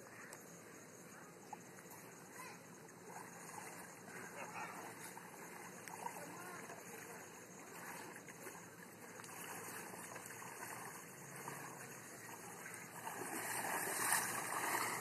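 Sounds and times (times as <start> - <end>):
water sloshing around wading legs: 1.0 - 15.0.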